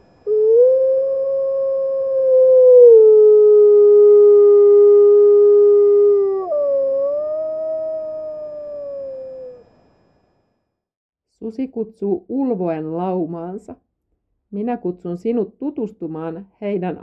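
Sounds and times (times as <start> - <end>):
wolf howling: 0.3 - 9.6.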